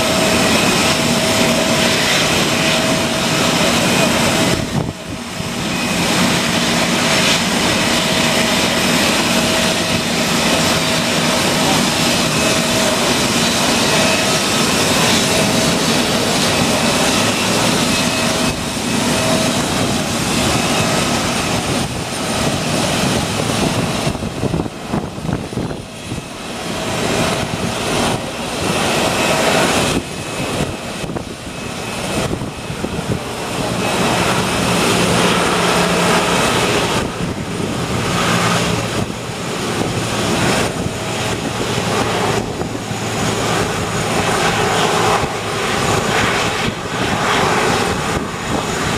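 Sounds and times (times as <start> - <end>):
jet engines running: 0.0 - 48.9.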